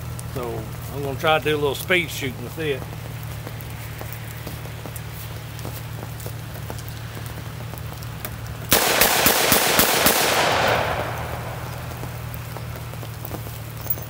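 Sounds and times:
revolver shots: 0:08.7 - 0:12.8.

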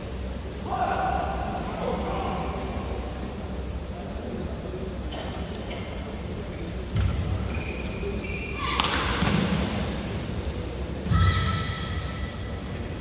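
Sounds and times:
shoes squeaking on court: 0:07.1 - 0:09.1.

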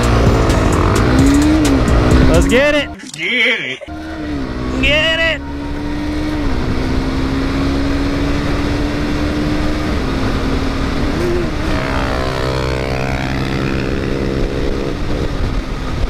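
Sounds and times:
motorcycle engine at high revs: 0:00.0 - 0:02.9, 0:03.9 - 0:16.0
second motorcycle engine sweeping pitch: 0:00.0 - 0:03.0, 0:03.9 - 0:15.7
wind rush on microphone: 0:09.6 - 0:16.0.

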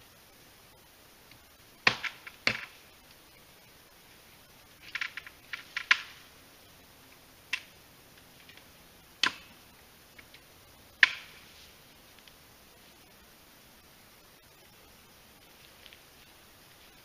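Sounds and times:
twigs snapping underfoot: 0:04.8 - 0:06.2, 0:11.0 - 0:11.5.

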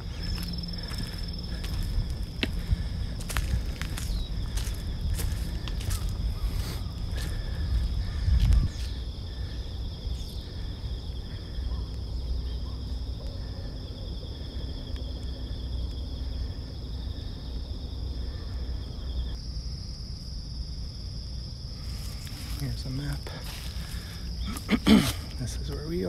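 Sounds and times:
low rumble: 0:00.0 - 0:19.4
insects trilling: 0:00.0 - 0:26.0.

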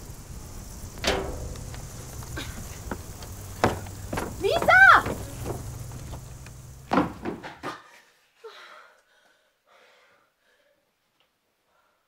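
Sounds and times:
faint rustling: 0:00.0 - 0:07.2
heavy thud: 0:01.0 - 0:07.6
scuffle of small knocks: 0:01.0 - 0:07.8.

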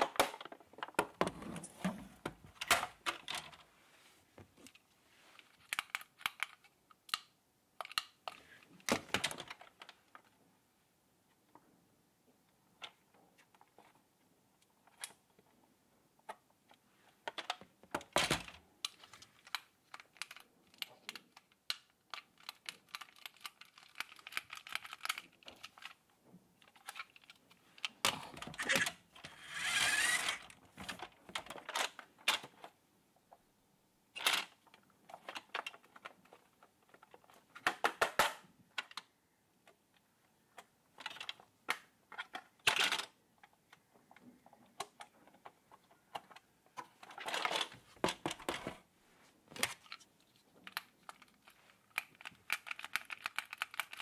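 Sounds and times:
plastic toy car rattling: 0:17.3 - 0:32.6, 0:34.1 - 0:39.1, 0:40.6 - 0:48.7, 0:49.6 - 0:54.0.

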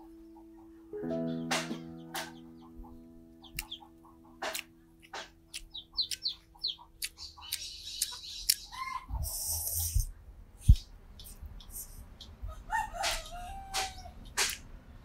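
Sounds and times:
chickens clucking: 0:00.0 - 0:10.0, 0:10.6 - 0:14.6
small birds chirping: 0:00.0 - 0:12.6
sharp clicks: 0:03.5 - 0:03.8, 0:04.4 - 0:06.4, 0:13.8 - 0:14.7.

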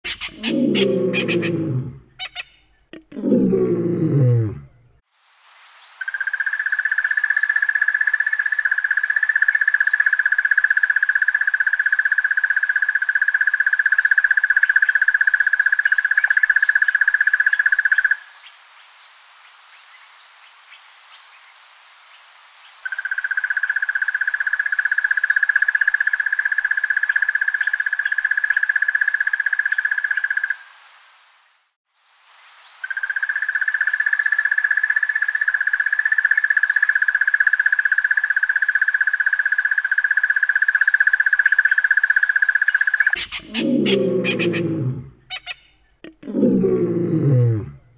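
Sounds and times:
bird trilling: 0:00.0 - 0:02.9, 0:42.6 - 0:46.0.

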